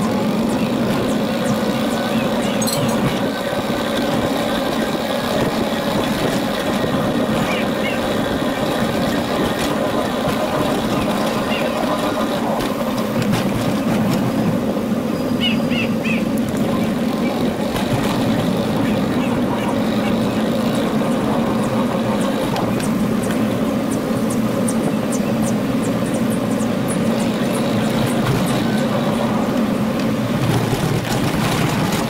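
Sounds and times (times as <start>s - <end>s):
small motor humming: 0.0s - 13.2s, 15.1s - 30.2s
bird chirps: 15.1s - 16.3s.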